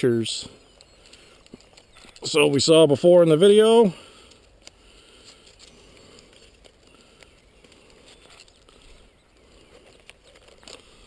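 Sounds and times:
walking through grass: 0:00.4 - 0:11.0
camera handling rustle: 0:00.6 - 0:02.3, 0:04.0 - 0:11.0.

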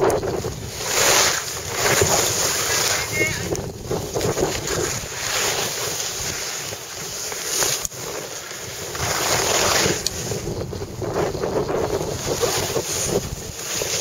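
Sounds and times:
wind buffeting microphone: 0:00.0 - 0:07.2, 0:08.7 - 0:14.0
skis hissing on snow: 0:00.4 - 0:14.0.

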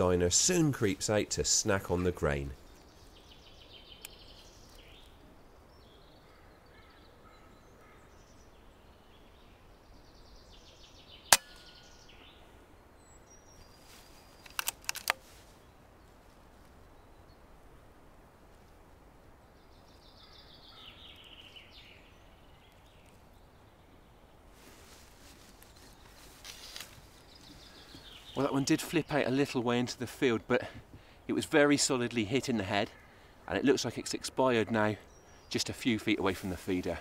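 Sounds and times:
birds chirping faintly: 0:00.0 - 0:37.0
muffled air rifle shot: 0:11.3 - 0:11.7
sharp clicks: 0:14.4 - 0:15.2.

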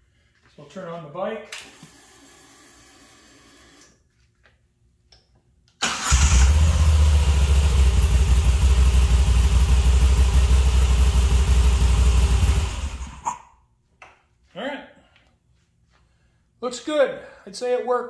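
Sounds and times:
motorcycle engine starting and idling: 0:05.8 - 0:13.2.

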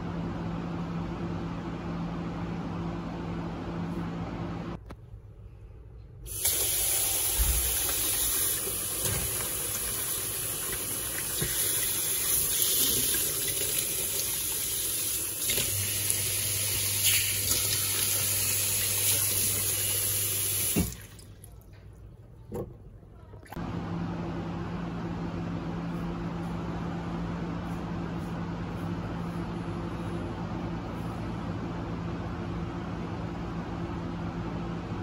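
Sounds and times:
tap water running: 0:06.3 - 0:21.6.

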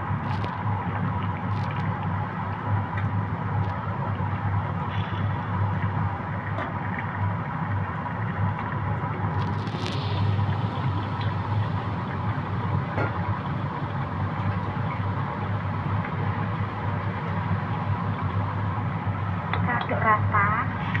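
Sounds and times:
low mechanical hum: 0:00.0 - 0:21.0
even hiss: 0:09.4 - 0:11.9.

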